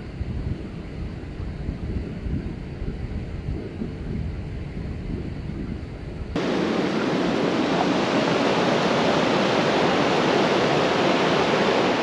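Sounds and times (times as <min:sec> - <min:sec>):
river rushing over rapids: 0:06.4 - 0:12.0.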